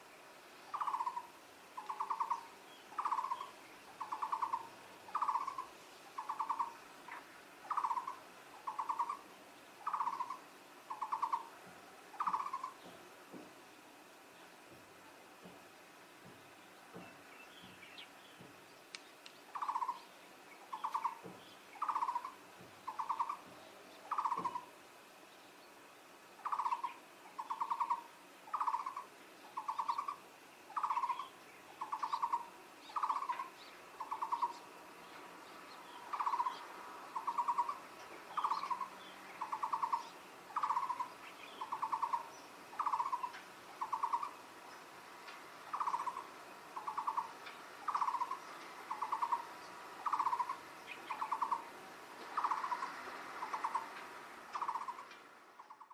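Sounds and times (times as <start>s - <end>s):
bird calling in trilled notes: 0.7s - 9.2s, 9.8s - 11.5s, 12.1s - 12.8s, 19.5s - 21.2s, 21.8s - 23.4s, 24.0s - 24.7s, 26.4s - 34.6s, 37.2s - 44.4s, 45.7s - 51.6s, 52.4s - 53.9s, 54.5s - 55.9s.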